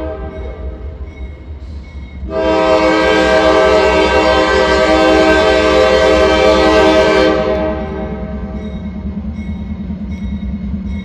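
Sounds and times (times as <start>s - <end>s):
locomotive air horn blast: 0.0s - 0.5s, 2.3s - 8.5s.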